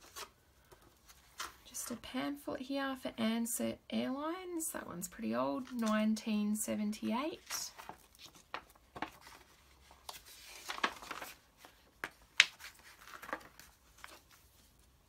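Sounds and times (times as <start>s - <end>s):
paper rustling: 7.4s - 15.0s.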